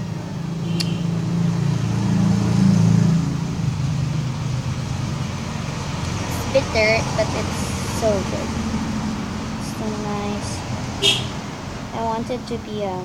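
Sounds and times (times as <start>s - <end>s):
vehicle engine rumble: 0.0s - 13.0s.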